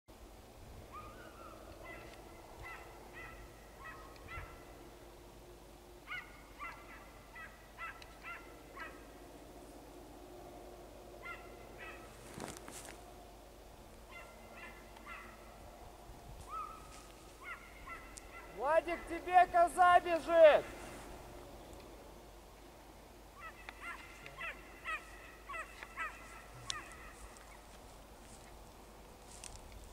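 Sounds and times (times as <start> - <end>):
steady low background noise: 0.1 - 29.9
distant animal calls: 0.8 - 5.3, 5.9 - 13.1, 14.0 - 19.2, 23.2 - 27.9.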